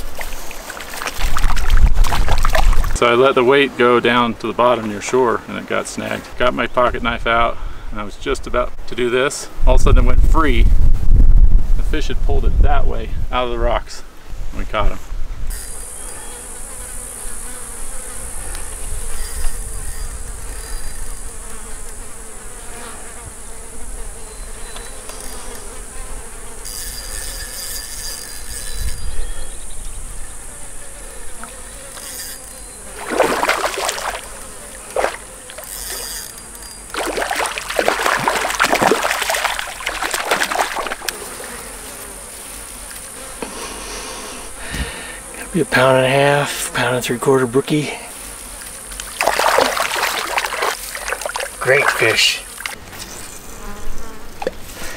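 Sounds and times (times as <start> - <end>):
fish splashing in water: 0.0 - 3.0, 33.0 - 36.2, 36.9 - 41.1, 49.0 - 52.8
insects buzzing: 0.0 - 9.7, 15.2 - 54.9.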